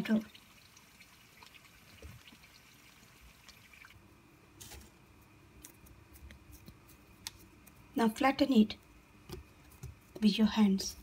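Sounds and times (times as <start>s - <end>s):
hands shaping dough: 4.6s - 8.1s, 8.7s - 11.0s.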